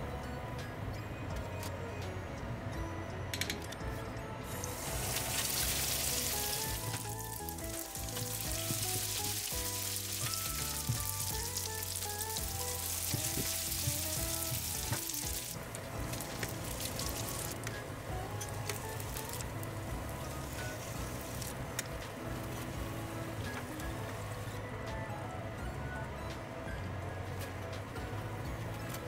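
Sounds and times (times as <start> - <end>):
background music: 0.0 - 29.0
bread deep-frying in oil: 4.5 - 17.7, 18.3 - 24.0.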